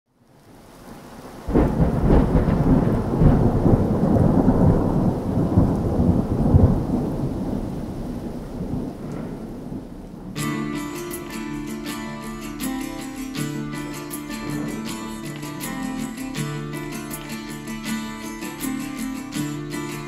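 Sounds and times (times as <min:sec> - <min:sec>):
rain: 0:00.1 - 0:20.0
thunder rumbling: 0:00.5 - 0:10.9.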